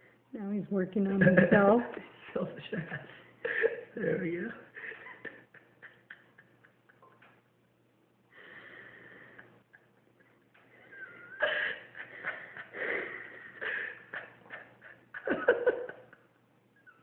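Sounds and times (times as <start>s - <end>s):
man laughing under his breath: 2.8s - 7.1s, 9.1s - 16.2s.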